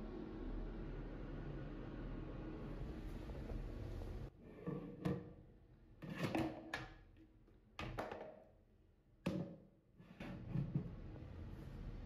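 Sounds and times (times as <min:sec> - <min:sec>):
plastic bowl knocking and clattering: 0:07.8 - 0:08.5, 0:09.2 - 0:10.9.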